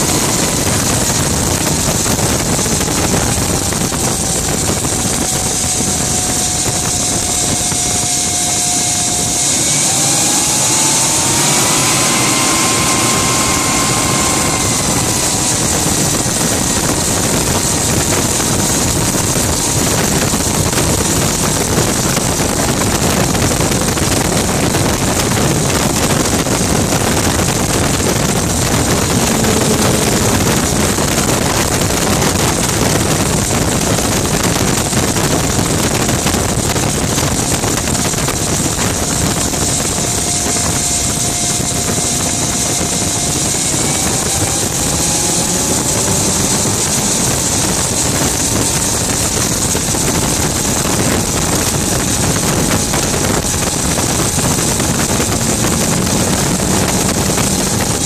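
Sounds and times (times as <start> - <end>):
gas turbine engine running: 0.0 - 58.0.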